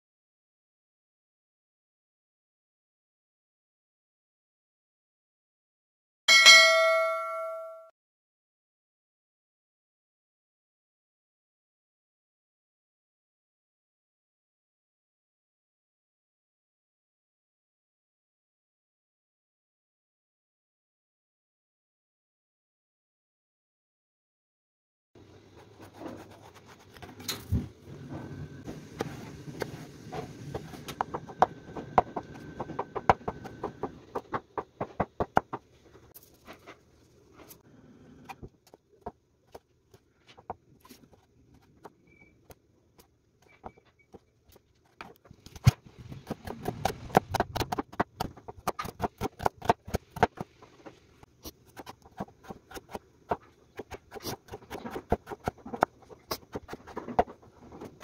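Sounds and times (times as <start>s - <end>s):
knife chopping on wooden board: 30.6s - 35.6s, 45.6s - 50.5s.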